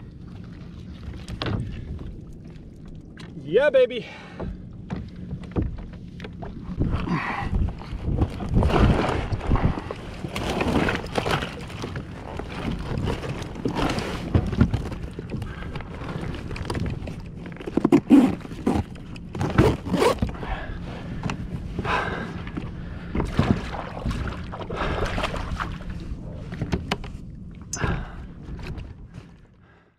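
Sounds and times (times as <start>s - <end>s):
knocks and scrapes of fish handling: 7.6s - 20.4s
loud clatter on plastic kayak: 7.7s - 20.4s.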